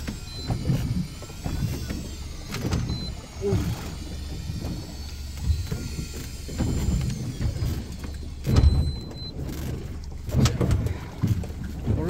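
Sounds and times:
fishing reel winding whine: 0.0 - 11.2
boat engine rumble: 0.0 - 12.0.

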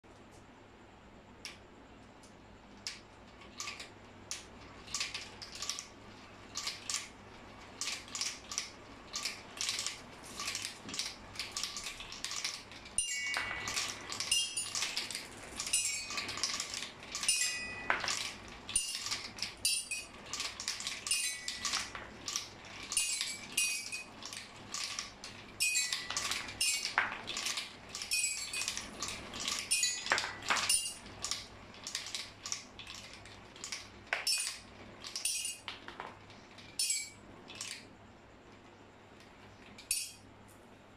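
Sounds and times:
marbles clattering through pipe: 2.9 - 37.9
toy xylophone notes: 13.0 - 14.8, 15.6 - 16.2, 17.2 - 18.0, 21.1 - 21.8, 25.6 - 26.9, 29.7 - 31.0.

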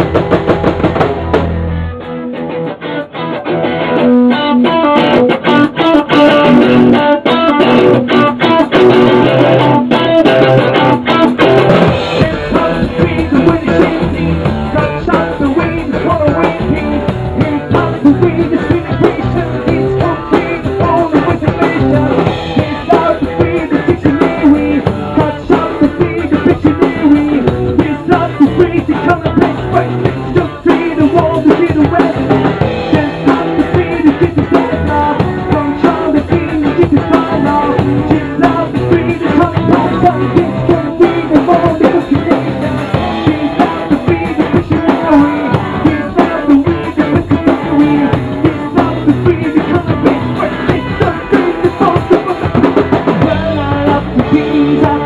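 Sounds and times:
drum kit hits: 0.0 - 1.9, 4.6 - 55.0
electric bass guitar: 0.0 - 55.0
person singing: 4.0 - 55.0.

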